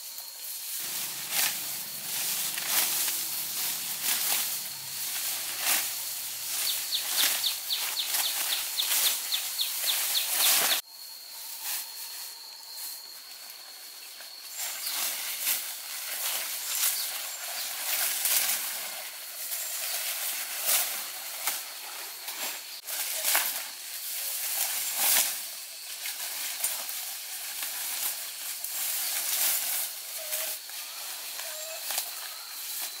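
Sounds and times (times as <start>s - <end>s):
grass and leaves rustling: 0.0s - 33.0s
thin high tone: 0.8s - 13.3s.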